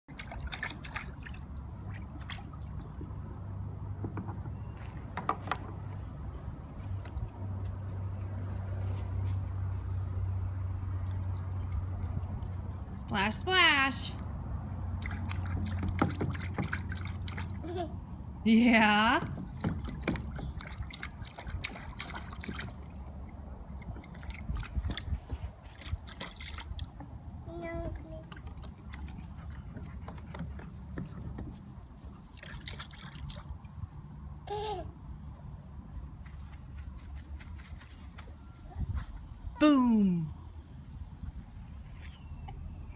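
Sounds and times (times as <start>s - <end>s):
water splashes and drips: 0.1s - 4.0s, 10.8s - 13.0s, 14.8s - 17.7s, 19.2s - 34.2s.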